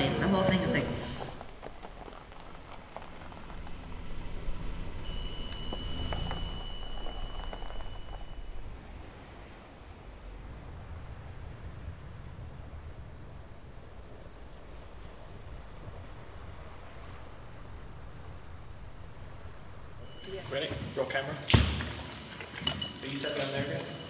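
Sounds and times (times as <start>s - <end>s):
low rumble: 0.0s - 20.7s
insect chirps: 1.2s - 24.0s
insect trilling: 5.0s - 11.1s, 13.1s - 20.7s.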